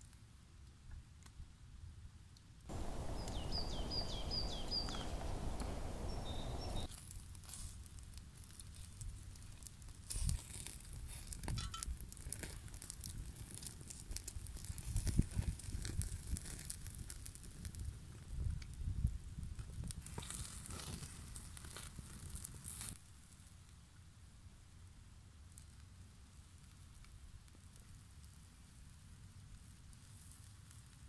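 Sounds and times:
bird chirping: 2.7 - 6.9
steady rushing noise: 2.7 - 6.9
dry leaves rustling: 2.7 - 8.7
embers crackling and popping: 2.7 - 23.7, 25.6 - 31.0.

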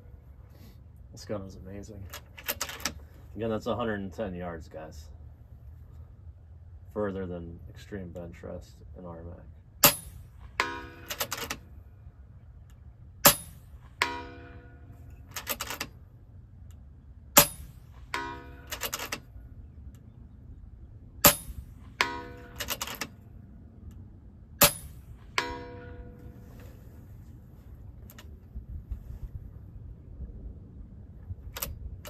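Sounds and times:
metallic target clang: 9.8 - 11.7, 13.2 - 15.9, 17.3 - 19.4, 21.2 - 23.2, 24.6 - 26.9
air rifle shots cracking: 13.2 - 14.1, 17.4 - 19.3, 21.2 - 23.2
rifle action clicks: 22.5 - 23.2.

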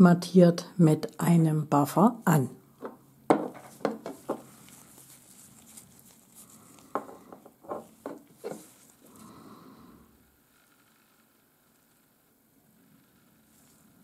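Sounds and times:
soft rustle: 3.5 - 14.0.

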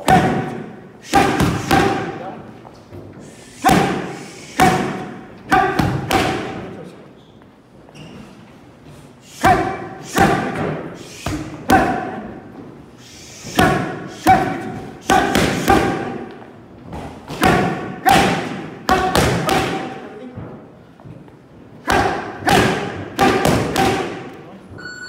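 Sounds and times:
boxing gloves punching focus mitts: 0.0 - 2.2, 3.6 - 6.6, 16.9 - 20.0, 21.8 - 24.3.

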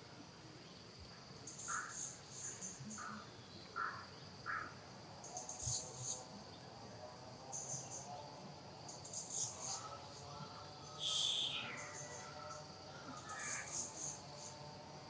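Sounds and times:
insects droning: 0.0 - 15.0
short mid-pitched calls: 11.0 - 11.9.

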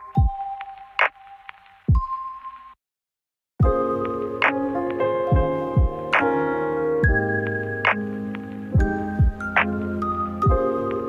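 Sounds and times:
held keyboard chords: 3.6 - 11.0
deep kick drums: 5.3 - 6.0, 8.8 - 9.5.

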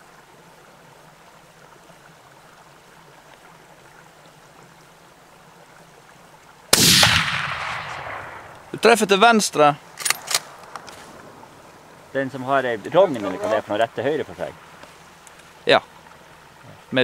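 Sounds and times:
faint steady hiss: 0.0 - 17.0
rifle shot echoing: 6.7 - 8.8.

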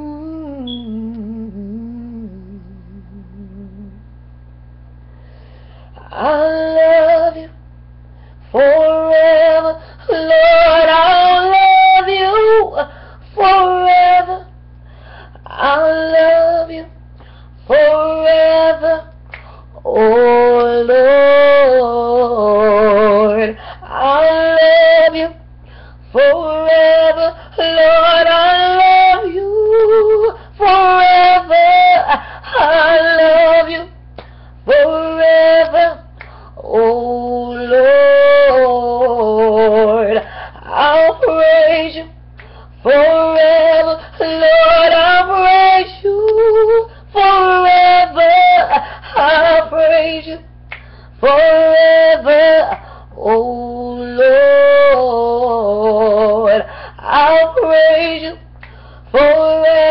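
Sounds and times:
woman singing unaccompanied: 0.0 - 4.1, 6.0 - 7.6, 8.5 - 14.6, 15.4 - 17.0, 17.6 - 25.4, 26.1 - 50.5, 51.2 - 59.9.

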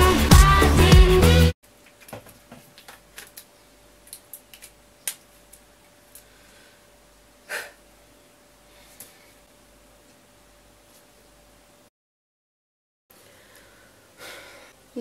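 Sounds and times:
music: 0.0 - 1.6.

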